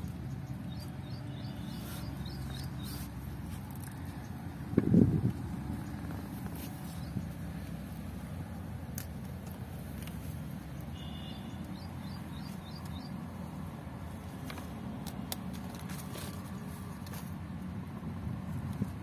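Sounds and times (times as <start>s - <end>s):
small bird chirping: 0.0s - 3.5s, 10.7s - 13.2s
low outdoor rumble: 0.0s - 19.0s.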